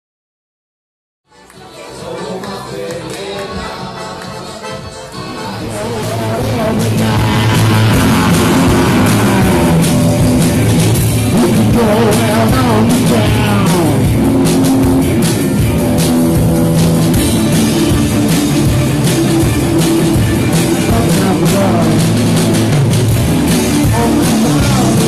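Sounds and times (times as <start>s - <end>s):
person singing: 1.6s - 14.5s, 20.6s - 22.4s, 23.8s - 25.0s
electric guitars: 2.4s - 25.0s.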